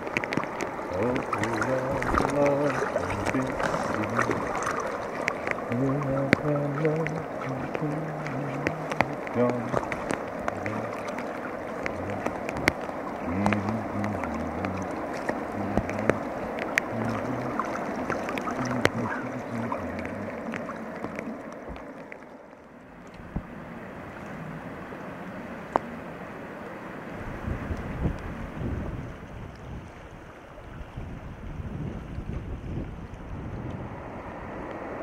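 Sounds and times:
sharp ticks: 0:00.0 - 0:22.3
river water rushing: 0:00.0 - 0:31.9, 0:32.9 - 0:35.0.

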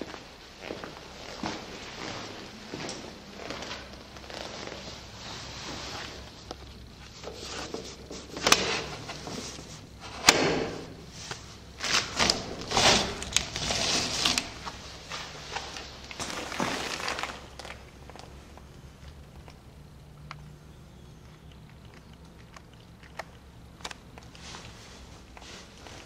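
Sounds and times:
rustling: 0:10.8 - 0:19.7, 0:21.6 - 0:26.0.

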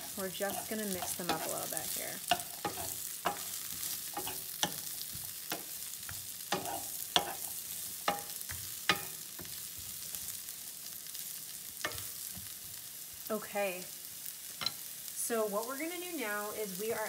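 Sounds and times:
vegetables sizzling in oil: 0:00.0 - 0:17.0
wooden spoon knocking pan: 0:04.2 - 0:09.6.

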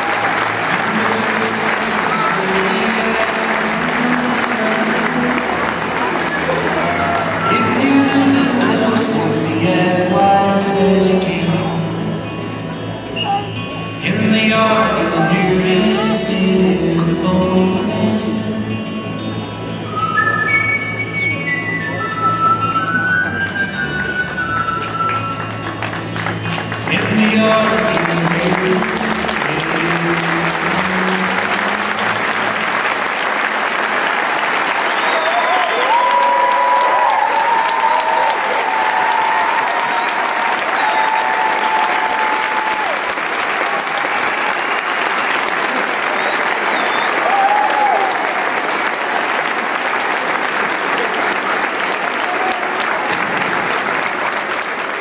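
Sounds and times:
audience applauding: 0:00.0 - 0:10.3, 0:21.8 - 0:55.0.

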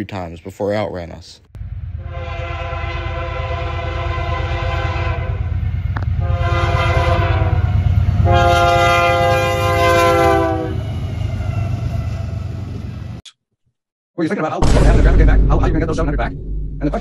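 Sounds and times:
low rumble of train: 0:01.6 - 0:13.2
locomotive air horn blasts: 0:02.0 - 0:11.4.

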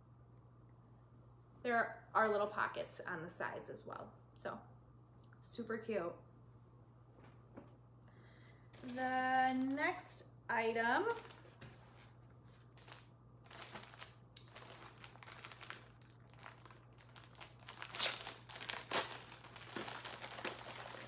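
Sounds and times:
packaging crinkling and rustling: 0:08.8 - 0:10.0, 0:11.0 - 0:21.0.

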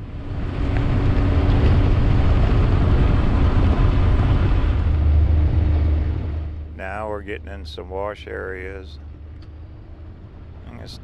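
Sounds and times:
engine low rumble: 0:00.0 - 0:11.0.

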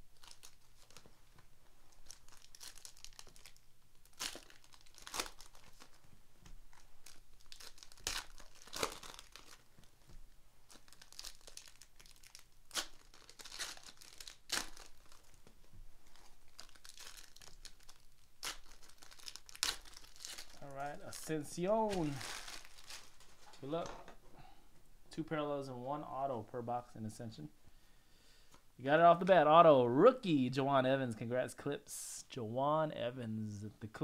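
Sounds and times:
foil wrappers crinkling: 0:00.1 - 0:01.1, 0:02.0 - 0:06.0, 0:06.7 - 0:09.9, 0:10.7 - 0:23.7
foil wrappers ripping: 0:02.0 - 0:06.0, 0:06.7 - 0:09.6, 0:10.7 - 0:15.4, 0:16.2 - 0:23.3.

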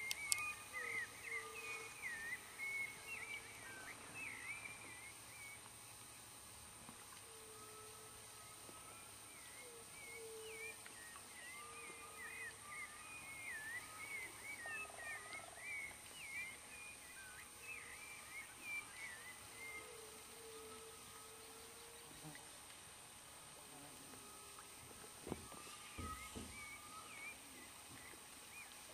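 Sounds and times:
steady high hiss: 0:00.0 - 0:28.9
low drawn-out animal notes: 0:07.2 - 0:22.5, 0:23.2 - 0:28.8.

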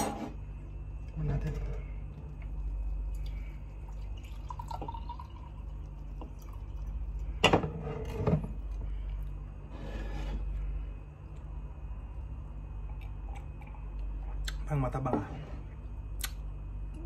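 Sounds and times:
steady low hum: 0:00.0 - 0:17.0
liquid in a glass: 0:02.4 - 0:08.9.

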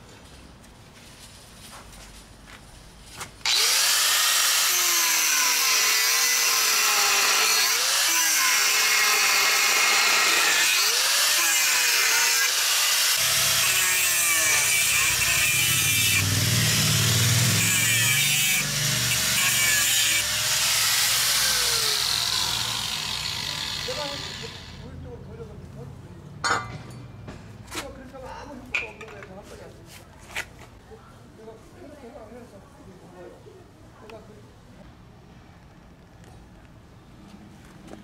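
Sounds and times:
angle grinder cutting steel: 0:03.4 - 0:24.9.

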